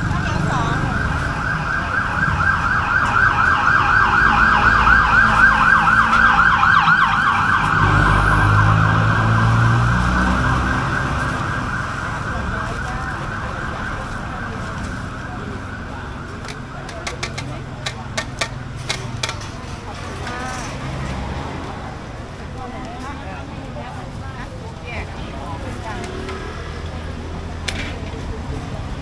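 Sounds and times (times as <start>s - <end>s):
siren warbling yelp: 0.0s - 16.8s.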